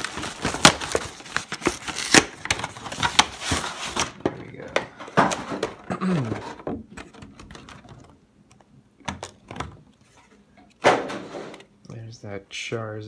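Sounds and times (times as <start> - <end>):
plastic tray rustling and scraping: 2.5 - 8.1, 9.2 - 11.7.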